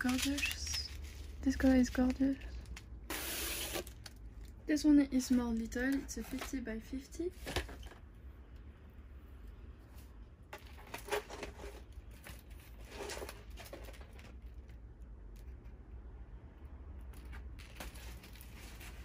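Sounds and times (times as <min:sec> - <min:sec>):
packaging rustling on cloth: 0:00.0 - 0:04.6.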